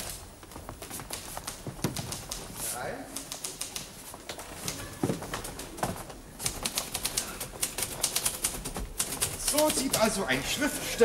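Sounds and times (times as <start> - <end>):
typewriter keys clattering: 6.4 - 10.5.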